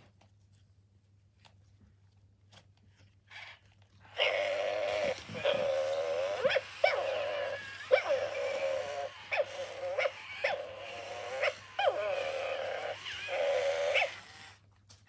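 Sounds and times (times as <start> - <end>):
toy puppy dog-like calls: 3.3 - 14.6.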